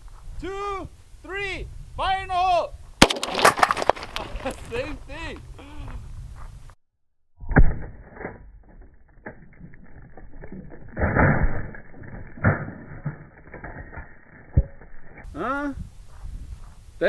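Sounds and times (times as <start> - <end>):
rifle shot: 3.0 - 4.0
thumps and clatter of falling debris: 3.0 - 4.7.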